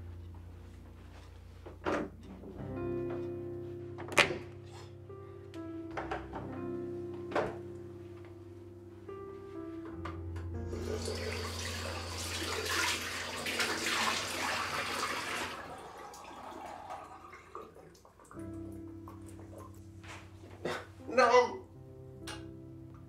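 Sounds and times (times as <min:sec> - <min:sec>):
soft background music: 0:00.0 - 0:23.0
tap water running into basin: 0:10.7 - 0:18.6.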